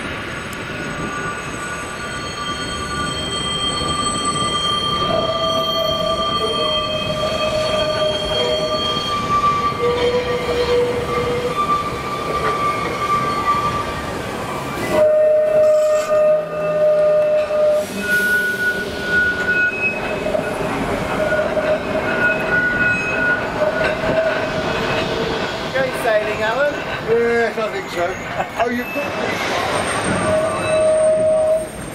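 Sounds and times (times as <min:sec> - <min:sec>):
tram rumbling: 0:00.0 - 0:31.9
tram wheels squealing: 0:00.0 - 0:31.9.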